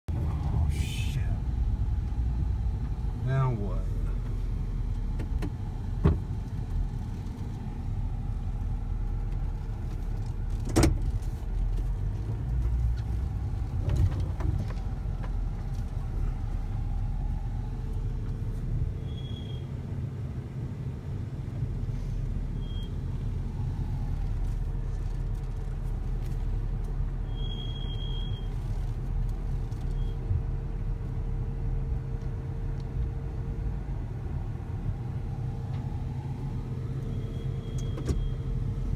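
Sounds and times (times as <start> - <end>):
van engine and tyres rumbling: 0.0 - 38.9.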